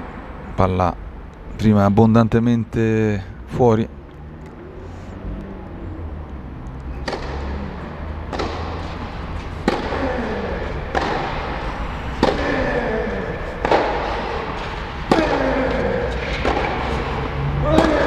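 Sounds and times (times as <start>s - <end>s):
tennis ball hit with rackets: 6.2s - 18.0s.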